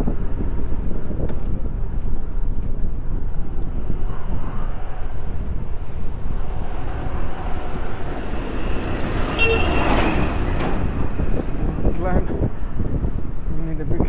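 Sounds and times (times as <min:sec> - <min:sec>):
low wind rumble on microphone: 0:00.0 - 0:14.0
vehicle passing: 0:03.7 - 0:13.5
vehicle horn toot: 0:09.2 - 0:10.5.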